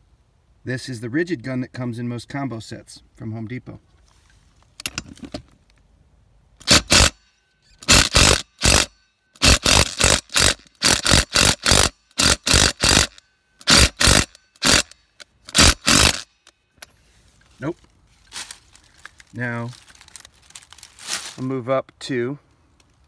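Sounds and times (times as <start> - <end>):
impact driver hammering: 6.6 - 7.2, 7.8 - 16.3.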